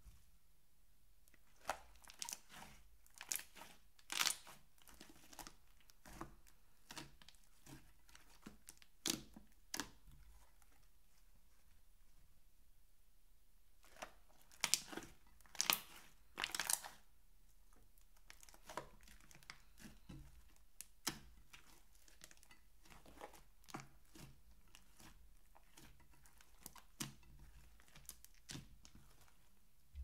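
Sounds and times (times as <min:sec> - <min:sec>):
slime crackling and popping: 0:01.4 - 0:05.6, 0:13.8 - 0:17.1.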